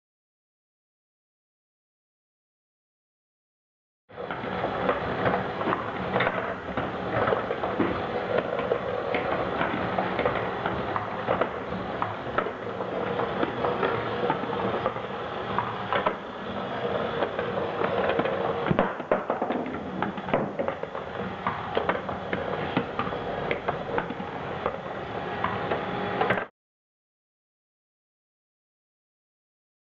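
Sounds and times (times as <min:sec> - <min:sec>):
small electric motor hum: 0:04.2 - 0:18.8.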